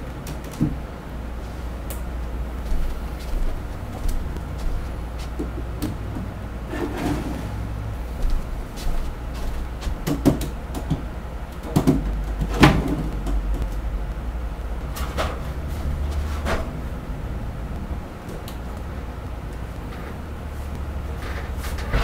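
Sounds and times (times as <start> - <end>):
steady low hum: 0.0 - 22.0
wooden panels knocking: 9.8 - 13.7.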